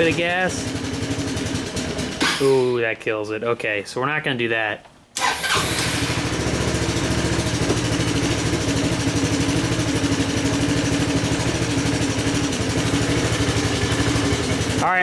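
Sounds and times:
scooter engine idling: 0.0s - 2.5s, 5.5s - 15.0s.

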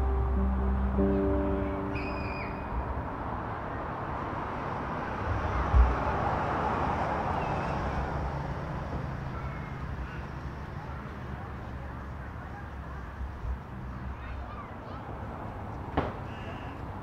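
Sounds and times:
vehicle passing: 0.0s - 12.2s
road traffic: 0.0s - 17.0s
low thump: 5.6s - 6.1s.

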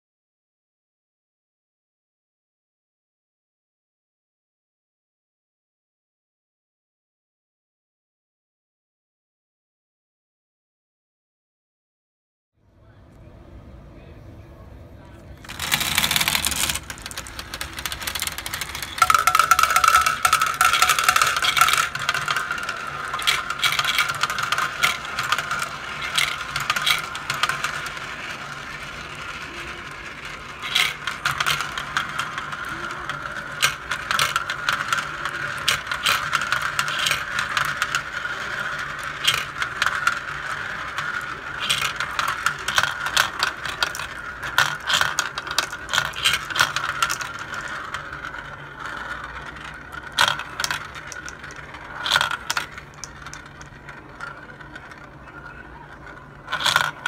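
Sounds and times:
marbles clattering through marble run: 15.4s - 57.0s.

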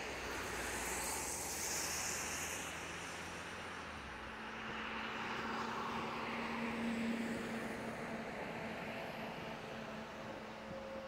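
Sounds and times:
tyre hiss on slushy road: 0.0s - 7.3s
faint vehicle hum: 0.0s - 11.0s.

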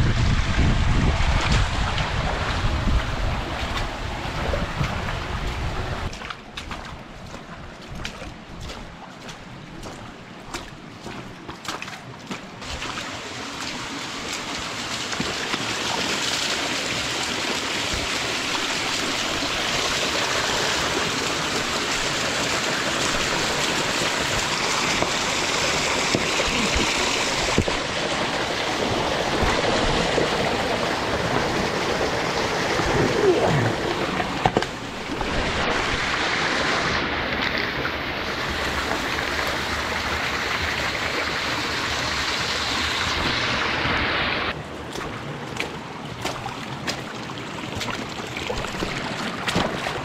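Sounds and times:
creek water rushing and splashing: 0.0s - 50.0s
steps on rock: 6.1s - 12.6s.

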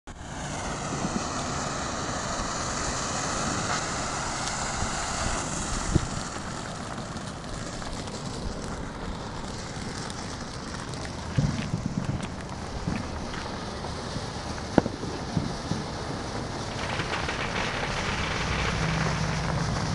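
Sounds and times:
firework hissing and crackling: 0.1s - 19.9s
sharp pop: 11.3s - 13.5s, 14.7s - 15.6s.

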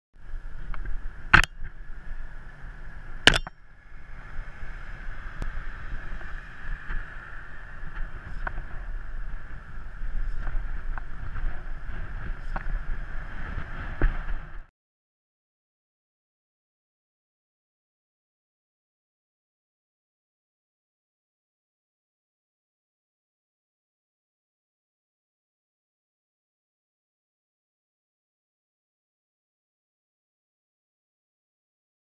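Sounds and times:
wind and road rumble: 0.2s - 14.7s.

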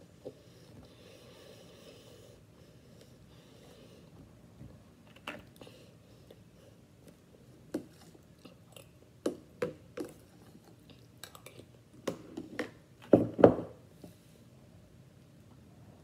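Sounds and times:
chewing crunchy cereal: 10.0s - 11.8s.

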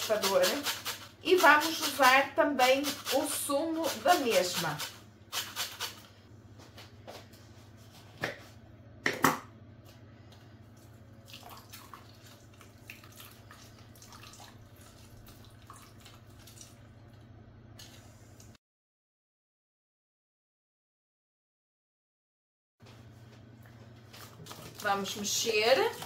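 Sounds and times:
low steady hum: 6.0s - 18.6s
juice dripping into bowl: 10.7s - 18.5s.

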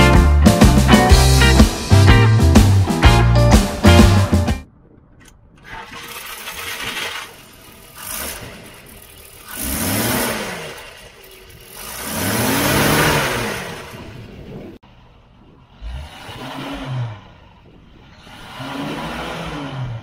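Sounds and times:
car engine running and revving: 6.0s - 20.0s.

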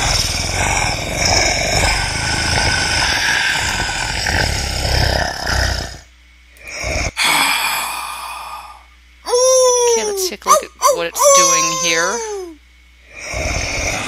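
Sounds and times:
monster growling: 0.0s - 6.0s, 13.1s - 14.0s.

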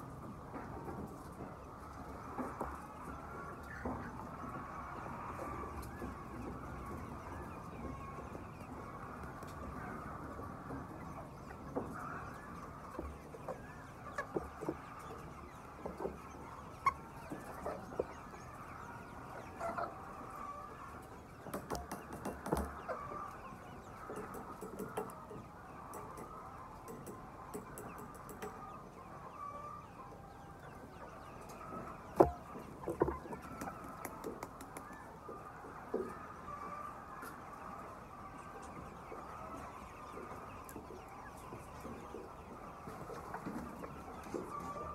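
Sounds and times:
chickens clucking: 0.0s - 44.9s
sharp taps and knocks: 21.4s - 22.7s, 24.1s - 25.2s, 32.9s - 35.0s.

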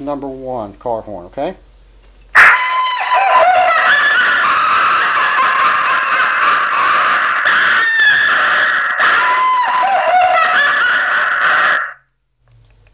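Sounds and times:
novelty horn playing cackling laugh: 3.0s - 11.9s.

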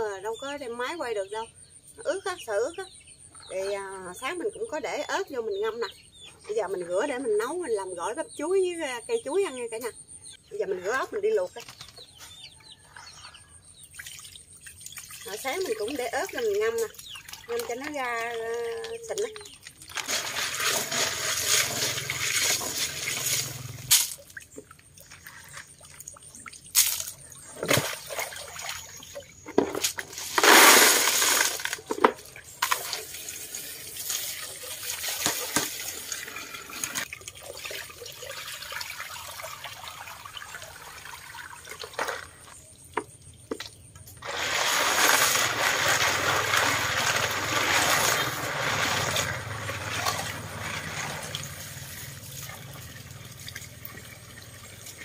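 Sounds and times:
water sloshing and splashing: 10.9s - 55.0s
running water: 13.8s - 55.0s
water pouring: 13.8s - 55.0s.

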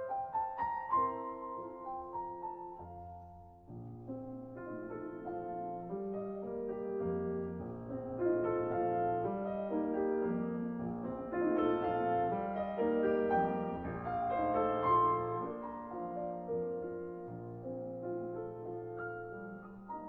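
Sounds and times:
gentle piano music: 0.0s - 20.0s.

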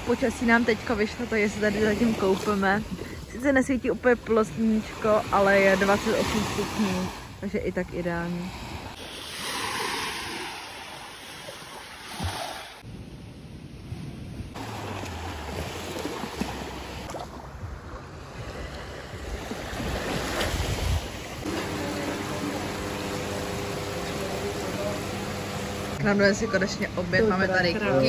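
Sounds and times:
small waves breaking on sand: 0.0s - 12.9s, 13.9s - 26.0s
wind buffeting microphone: 15.5s - 21.5s
steady hum: 21.5s - 28.0s.

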